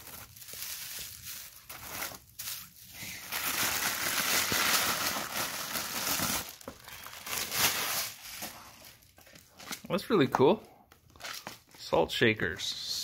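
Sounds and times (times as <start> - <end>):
paper crinkling and rustling: 0.0 - 9.9.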